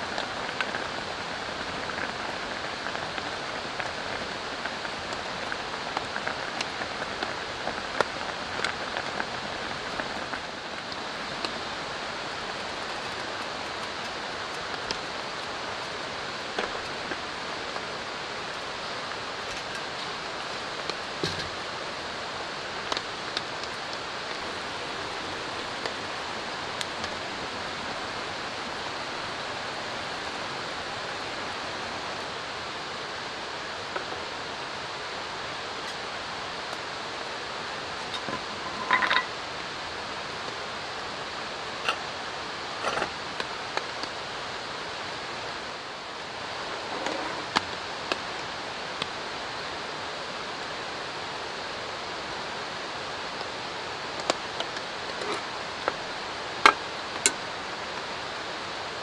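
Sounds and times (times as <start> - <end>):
drizzling rain: 0.0 - 59.0
running water: 0.0 - 59.0
utensils clinking on cookware: 38.1 - 39.3.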